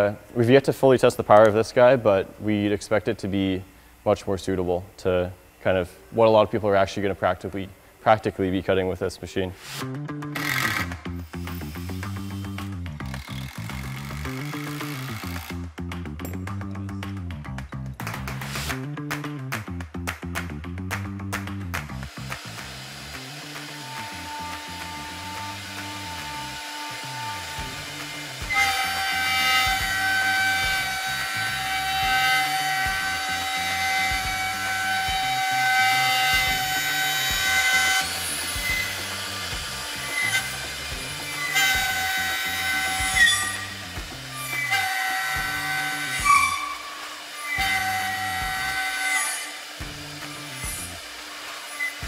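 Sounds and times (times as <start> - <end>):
router cutting wood: 10.4 - 15.6, 22.0 - 52.0
router spindle whining: 10.4 - 15.6, 22.1 - 52.0.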